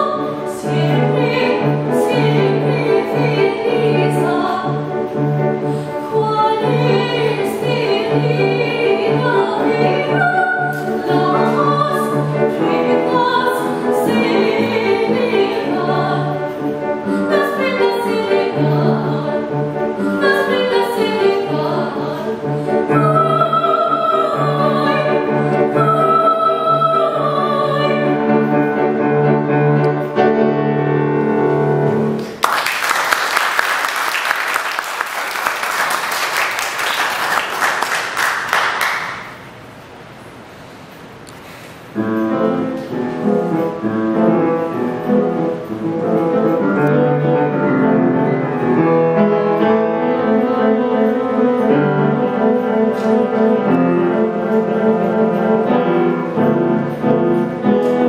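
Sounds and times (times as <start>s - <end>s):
woman singing operatically: 0.0s - 4.8s, 6.0s - 16.4s, 17.2s - 19.4s, 20.0s - 28.2s
musical accompaniment: 0.0s - 39.4s, 41.9s - 58.0s
audience applause: 32.2s - 39.4s.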